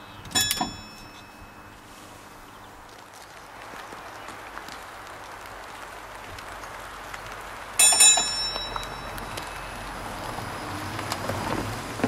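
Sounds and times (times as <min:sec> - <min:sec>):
tram bell ringing: 0:00.0 - 0:02.0, 0:07.8 - 0:10.2
road noise: 0:00.0 - 0:12.0.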